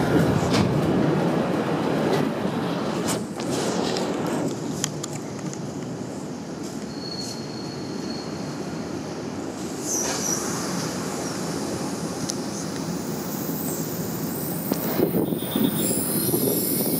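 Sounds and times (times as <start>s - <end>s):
train wheels rumbling on track: 0.0s - 16.9s
high wheel squeal: 6.8s - 9.2s, 9.8s - 11.6s, 12.5s - 16.9s.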